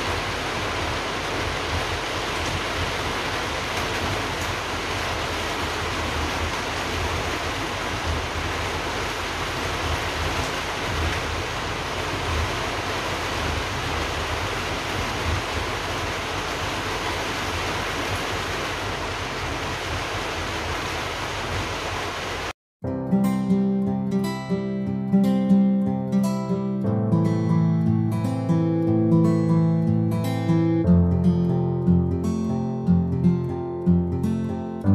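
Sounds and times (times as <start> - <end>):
steady rushing noise: 0.0 - 22.5.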